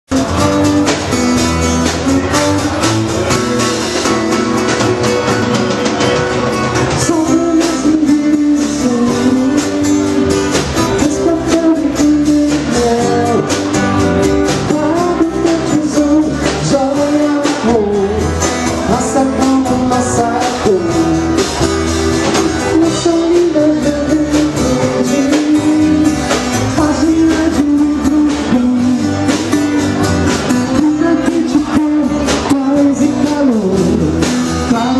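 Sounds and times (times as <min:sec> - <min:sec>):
drums: 0:00.0 - 0:34.9
electric bass: 0:00.0 - 0:34.9
acoustic guitar: 0:00.1 - 0:34.9
man singing into a microphone: 0:06.9 - 0:34.9.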